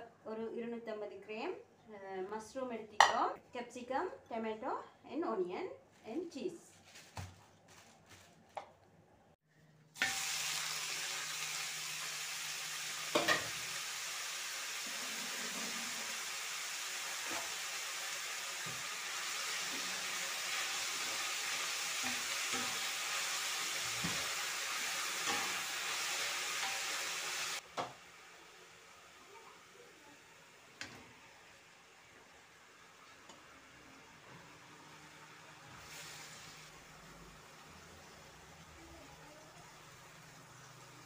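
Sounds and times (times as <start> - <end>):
mushrooms sizzling in a frying pan: 10.0 - 41.0
spoon scraping and knocking pan: 13.1 - 13.6, 25.1 - 27.0.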